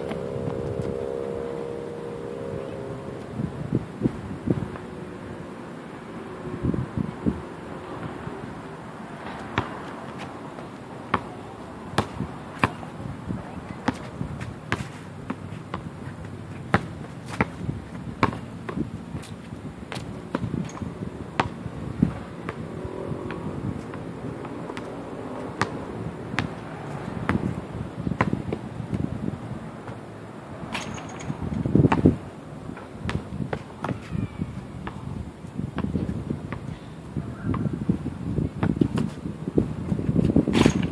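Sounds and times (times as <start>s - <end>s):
basketball bouncing on concrete: 9.6s - 11.4s, 12.0s - 12.9s, 16.7s - 18.9s, 19.9s - 21.6s, 25.6s - 29.1s, 31.8s - 32.2s, 33.0s - 34.2s, 35.8s - 36.6s, 38.6s - 39.1s.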